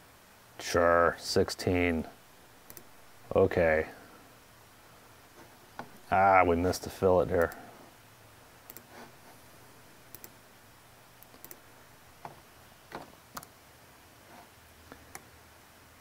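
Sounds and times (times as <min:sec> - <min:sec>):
laptop keys clicking: 0:10.1 - 0:10.4, 0:11.2 - 0:11.6, 0:12.2 - 0:13.5.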